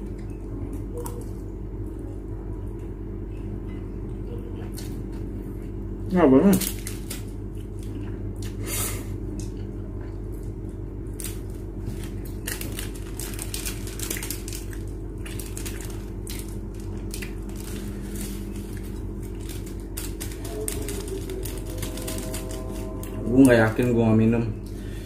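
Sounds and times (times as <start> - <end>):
steady low hum: 0.0 - 25.0
sachet being torn: 12.0 - 23.1.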